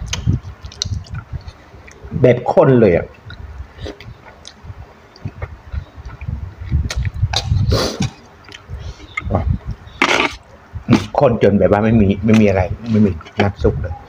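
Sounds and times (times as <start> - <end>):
wet chewing and mouth sounds: 0.0 - 2.1, 3.1 - 11.2.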